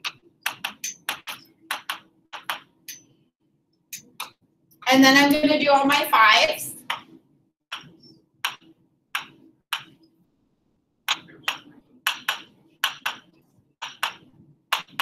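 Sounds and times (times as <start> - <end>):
marker tapping on board: 0.0 - 3.1, 6.8 - 10.1, 11.0 - 15.0.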